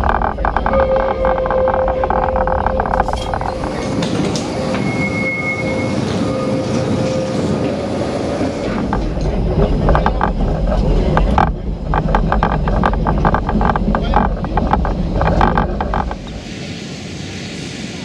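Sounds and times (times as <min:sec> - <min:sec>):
tram rolling rattle and rumble: 0:00.0 - 0:18.0
high wheel squeal: 0:00.3 - 0:07.5.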